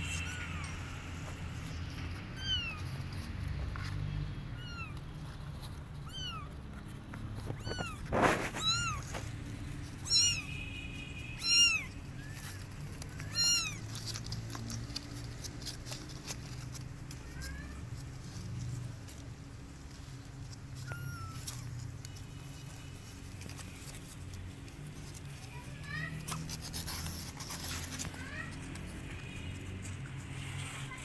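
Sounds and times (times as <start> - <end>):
kittens mewing: 0.0 - 1.3, 2.3 - 3.0, 4.5 - 5.0, 6.0 - 6.7, 7.4 - 10.6, 11.4 - 14.8, 20.7 - 21.9.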